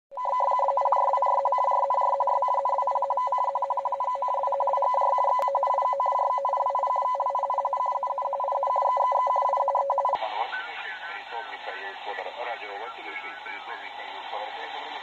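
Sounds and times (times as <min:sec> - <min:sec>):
two-tone data signal warble: 0:00.2 - 0:10.2.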